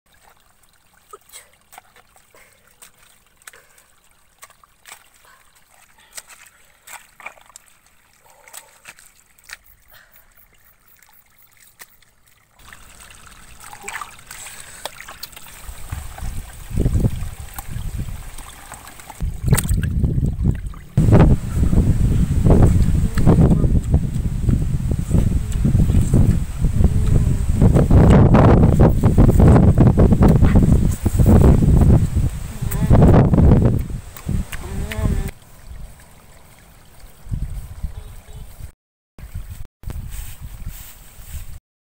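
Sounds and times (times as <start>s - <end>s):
mud squelching and splashing: 0.1s - 21.1s, 27.9s - 38.3s
heavy low rumbling: 21.0s - 28.0s.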